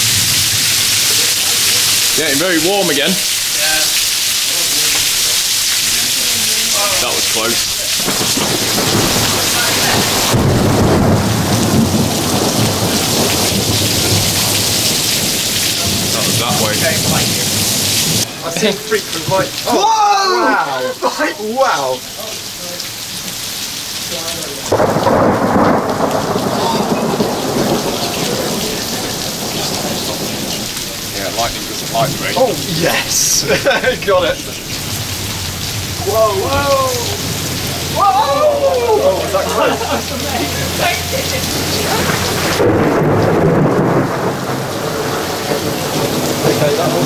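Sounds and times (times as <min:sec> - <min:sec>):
heavy rain: 0:00.0 - 0:47.0
thunderclap rolling: 0:06.7 - 0:18.3, 0:24.7 - 0:47.0.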